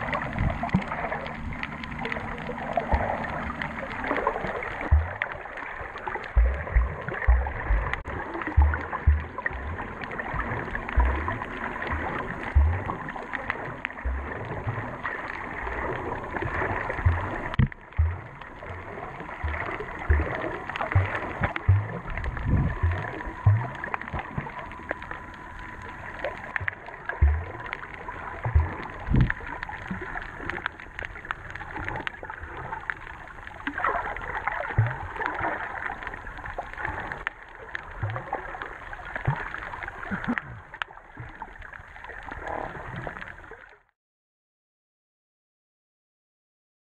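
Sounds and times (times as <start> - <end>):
muffled underwater water noise: 0.0 - 44.0
low thumps from swimming: 2.8 - 3.4, 4.8 - 5.4, 6.3 - 13.0, 14.0 - 14.9, 16.6 - 24.6, 26.5 - 27.7, 28.4 - 29.4.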